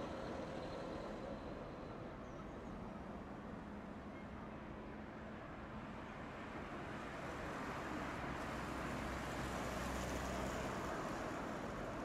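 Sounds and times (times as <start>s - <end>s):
road and tyre noise: 5.3s - 12.0s.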